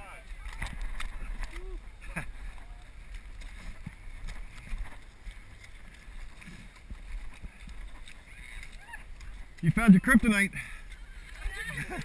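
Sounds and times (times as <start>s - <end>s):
wind rumble on microphone: 0.2s - 9.7s
feet sloshing through mud: 1.8s - 9.8s.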